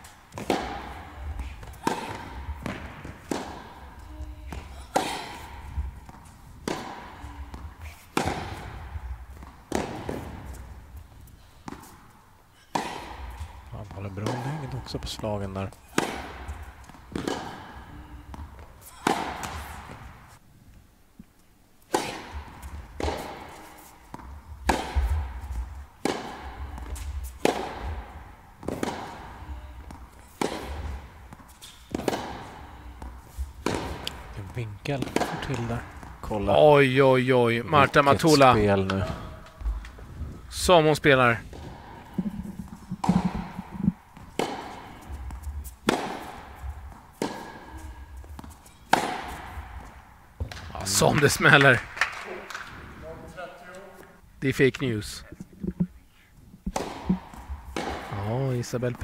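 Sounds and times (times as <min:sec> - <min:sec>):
racket striking ball: 0:00.0 - 0:20.4, 0:21.9 - 0:36.6, 0:41.4 - 0:51.2, 0:56.6 - 0:58.3
tennis ball bouncing: 0:00.0 - 0:20.4, 0:21.9 - 0:36.7, 0:41.4 - 0:52.8, 0:55.3 - 0:56.0, 0:56.6 - 0:58.5.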